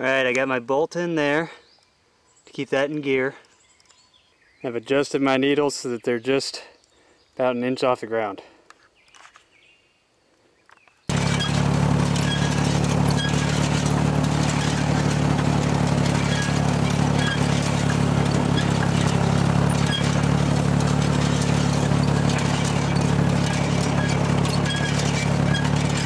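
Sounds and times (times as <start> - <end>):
tractor engine running: 11.1 - 26.0.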